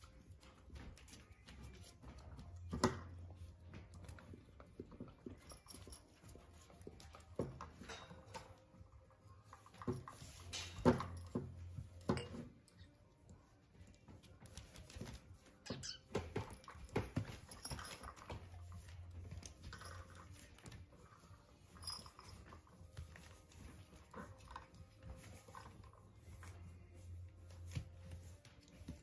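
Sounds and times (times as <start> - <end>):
puppies whimpering and squeaking: 15.6 - 16.7
puppies rustling on newspaper: 18.5 - 29.0.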